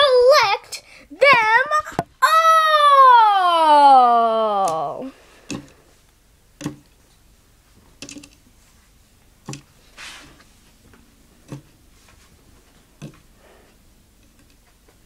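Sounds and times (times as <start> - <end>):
soft rustle: 7.6 - 9.1, 9.7 - 11.0, 11.8 - 13.7.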